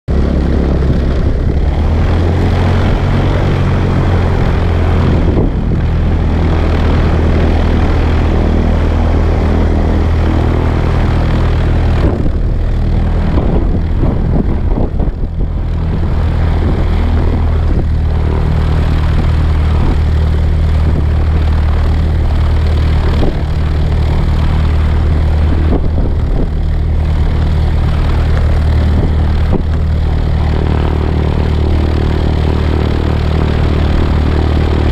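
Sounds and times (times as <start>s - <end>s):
propeller plane engine hum: 0.0s - 34.9s
rushing air noise: 0.1s - 34.9s.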